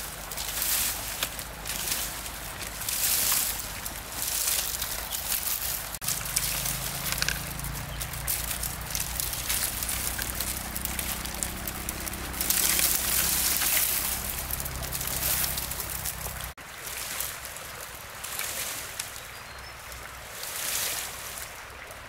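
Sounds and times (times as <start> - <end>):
engine-driven water pump running: 0.0 - 16.8
water splashing: 0.0 - 22.0.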